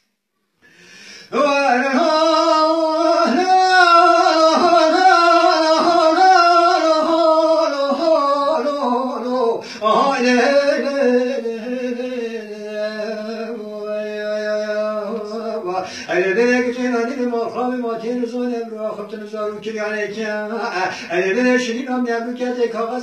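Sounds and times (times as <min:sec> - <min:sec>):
man singing unaccompanied: 0:01.2 - 0:23.0.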